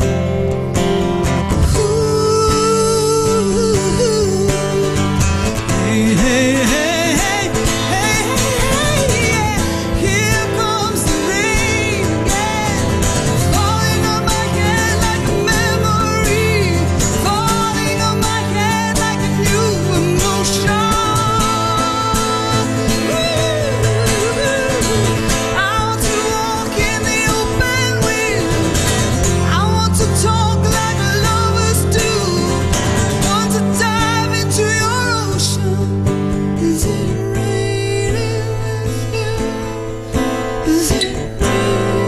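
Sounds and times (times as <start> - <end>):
acoustic guitar accompaniment: 0.0 - 42.0
woman singing: 0.8 - 42.0.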